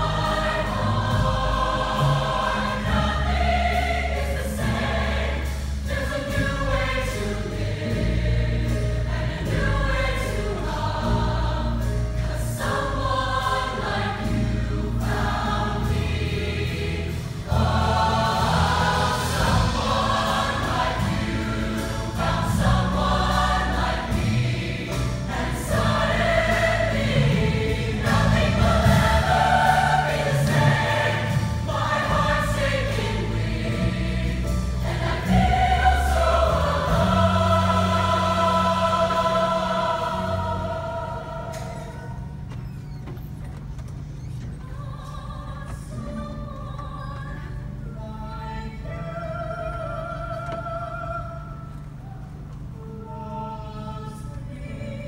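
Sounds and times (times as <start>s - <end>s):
choir singing in parts: 0.0s - 42.6s, 52.7s - 55.0s
music accompaniment with bass line: 0.0s - 42.6s.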